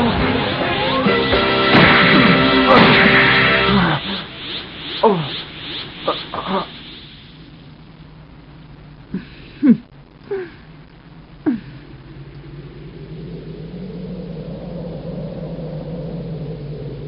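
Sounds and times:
falling-pitch swishes: 0.0 - 7.6
low rumbling hum: 0.0 - 17.0.

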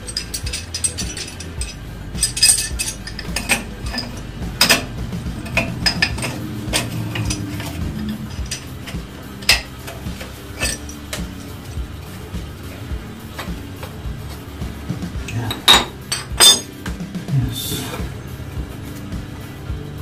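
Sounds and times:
hand tool clicking on metal pipe: 0.0 - 11.5.

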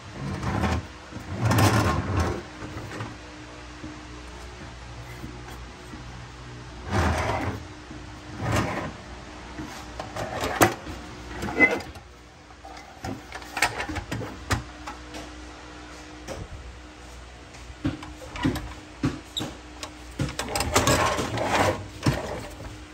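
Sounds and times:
scrapes and knocks: 6.8 - 7.6, 17.8 - 22.9.

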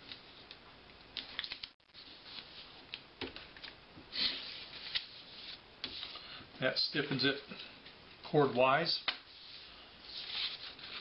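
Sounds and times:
paper rustling: 1.2 - 6.2, 9.3 - 11.0.

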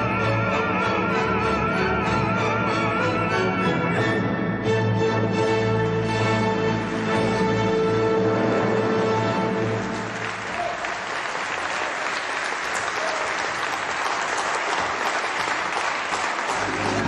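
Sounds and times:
audience applauding: 9.5 - 17.0
held musical chord: 16.6 - 17.0.

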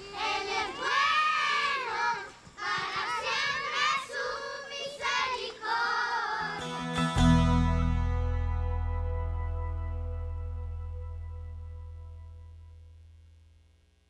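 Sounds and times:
children singing: 0.0 - 6.8.

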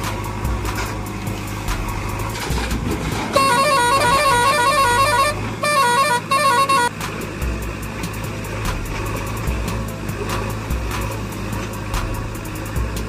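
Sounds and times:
low engine drone: 0.0 - 13.0
electronic beeping melody: 3.4 - 7.0.

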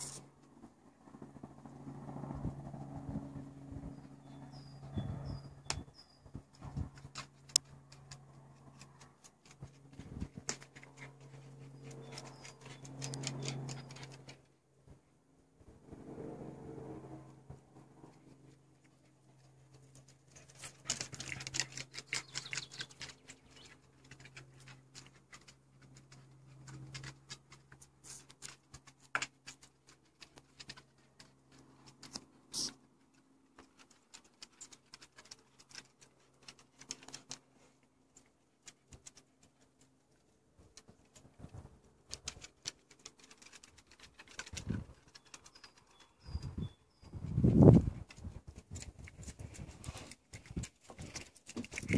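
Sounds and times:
dog claws clicking on wood: 6.5 - 14.5, 18.8 - 46.5, 47.8 - 51.9.

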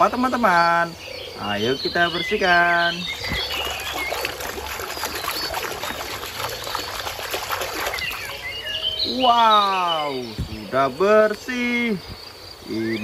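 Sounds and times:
water splashing in a basin: 2.2 - 9.4.

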